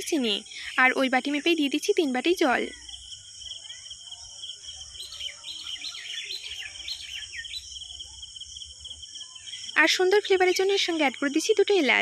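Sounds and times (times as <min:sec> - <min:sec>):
pulsing insect trill: 0:00.0 - 0:12.0
birds chirping: 0:02.5 - 0:12.0.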